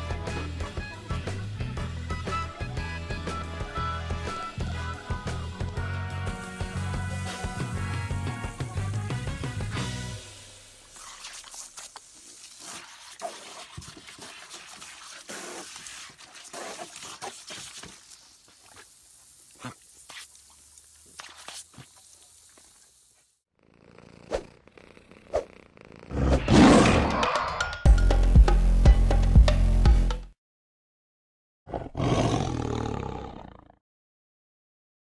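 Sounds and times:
music with a steady beat: 0:00.0 - 0:10.2, 0:27.6 - 0:30.3
water hissing from a garden hose: 0:04.3 - 0:23.4
big cat roaring: 0:31.7 - 0:33.8.

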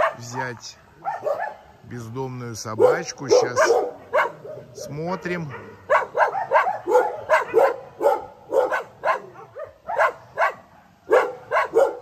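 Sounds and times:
dogs barking: 0:00.0 - 0:01.8, 0:02.6 - 0:12.0.

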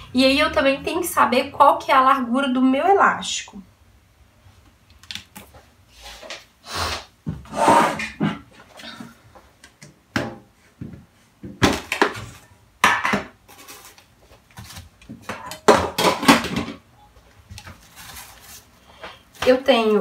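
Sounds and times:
objects clattering: 0:11.5 - 0:16.9.

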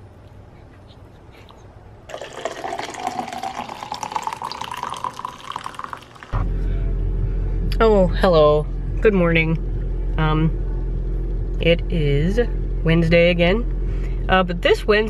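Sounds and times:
coffee pouring into tumbler: 0:02.1 - 0:06.4.

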